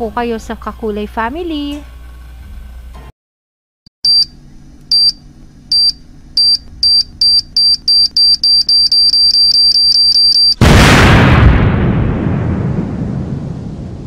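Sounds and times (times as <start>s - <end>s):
countdown timer beeps: 4.9s - 10.6s.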